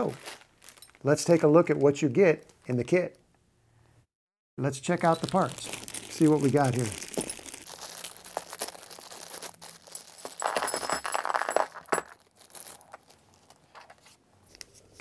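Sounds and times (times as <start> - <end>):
plastic bag crinkling: 0.0 - 1.8, 4.9 - 14.1
metal parts clinking on table: 9.9 - 12.2.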